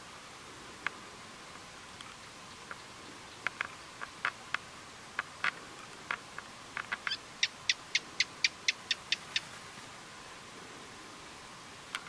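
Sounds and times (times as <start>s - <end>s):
faint hiss: 0.0s - 12.0s.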